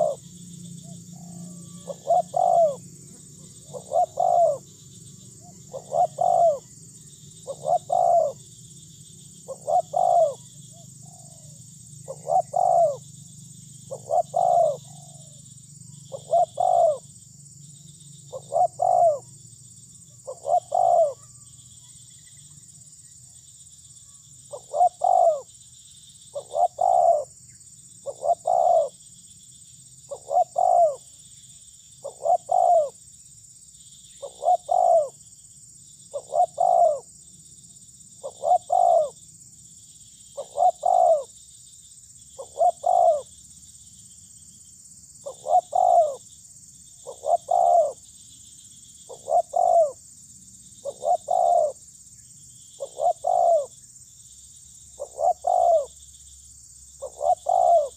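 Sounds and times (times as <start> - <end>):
dove cooing: 0.0 - 4.8, 5.4 - 6.8, 7.4 - 8.5, 9.4 - 13.0, 13.9 - 15.4, 16.1 - 17.1, 18.3 - 19.3, 20.1 - 21.4, 24.5 - 25.5, 26.3 - 27.3, 28.0 - 29.0, 30.1 - 31.2, 32.0 - 33.0, 34.2 - 35.2, 36.1 - 37.1, 38.2 - 39.2, 40.4 - 41.4, 42.4 - 43.3, 45.2 - 46.2, 47.0 - 48.0, 49.1 - 50.0, 50.8 - 51.8, 52.8 - 53.8, 55.0 - 56.0, 57.0 - 57.9.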